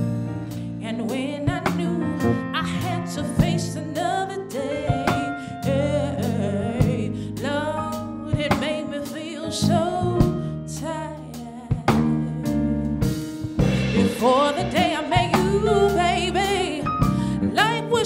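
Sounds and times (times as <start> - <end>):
drum kit: 0.0 - 18.0
woman singing soulful melody: 0.8 - 13.1, 13.8 - 18.0
sustained low notes: 13.6 - 17.5.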